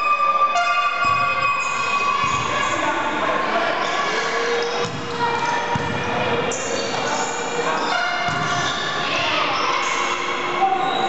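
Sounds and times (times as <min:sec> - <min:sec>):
spectators talking and shouting: 0:00.0 - 0:11.0
volleyball struck and bouncing: 0:00.6 - 0:02.6, 0:04.8 - 0:06.2, 0:07.9 - 0:08.7.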